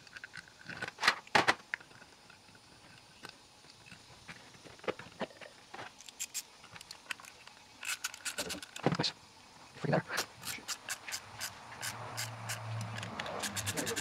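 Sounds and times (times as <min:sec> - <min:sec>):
screws and screwdriver clicking: 0:06.0 - 0:08.8, 0:10.2 - 0:14.0.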